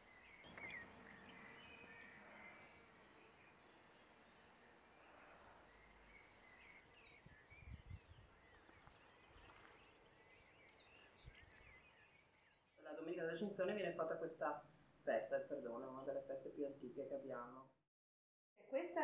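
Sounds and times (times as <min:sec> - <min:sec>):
insect trill: 0:00.0 - 0:07.2
bird chirps: 0:00.0 - 0:13.7.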